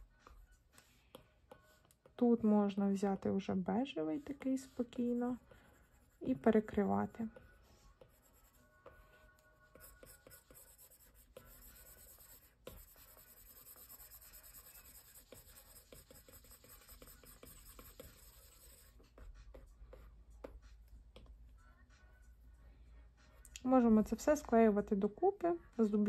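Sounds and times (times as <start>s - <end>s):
stylus scratching on glass screen: 0.2s - 20.9s.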